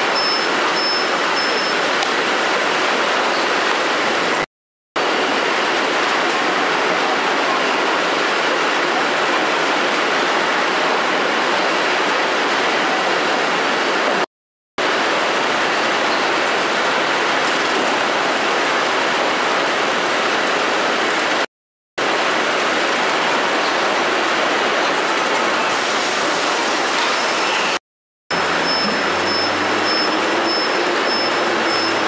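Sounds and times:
conveyor machinery noise: 5.0s - 14.2s, 22.0s - 32.0s.

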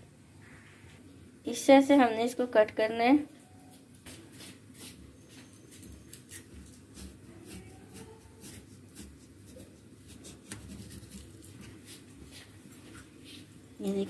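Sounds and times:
knife slicing potato: 6.1s - 12.5s.

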